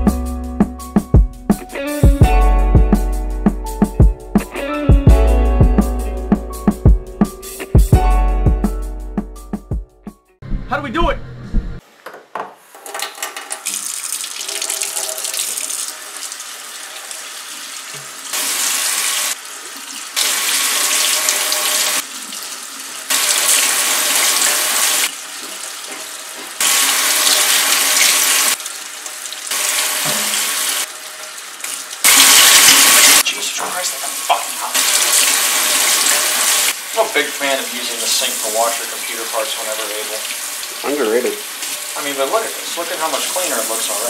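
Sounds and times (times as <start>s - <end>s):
faucet water stream over metal fins: 12.8s - 44.0s.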